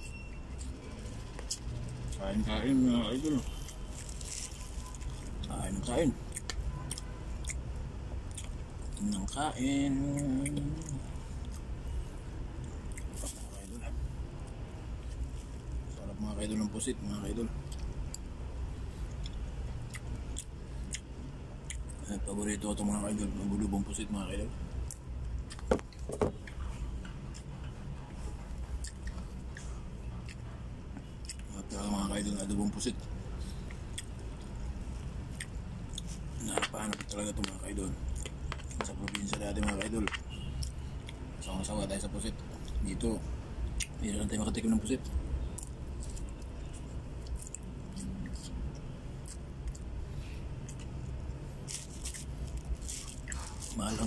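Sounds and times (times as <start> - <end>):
low background hum: 0.0 - 54.0
man chewing food: 6.2 - 9.1, 10.0 - 13.6, 17.6 - 22.0, 24.8 - 31.6, 33.3 - 41.3, 45.0 - 54.0.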